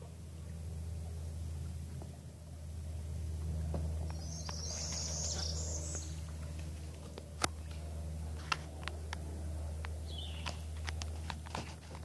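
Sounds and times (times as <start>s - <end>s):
steady low rumble: 0.0s - 12.0s
bird chattering call: 4.1s - 6.3s, 10.0s - 10.7s.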